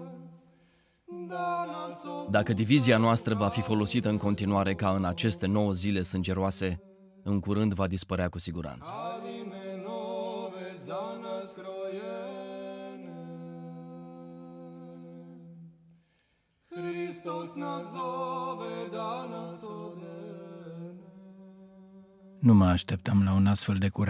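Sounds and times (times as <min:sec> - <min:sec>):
unaccompanied voices singing: 0:00.0 - 0:00.4, 0:01.1 - 0:06.1, 0:08.9 - 0:15.6, 0:16.7 - 0:22.3.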